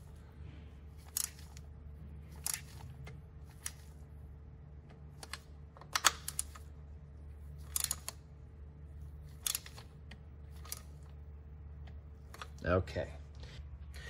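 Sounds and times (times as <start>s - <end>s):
steady low hum: 0.0s - 14.0s
wrench clicking: 1.1s - 1.6s, 2.4s - 2.8s, 7.6s - 8.2s, 9.4s - 9.8s.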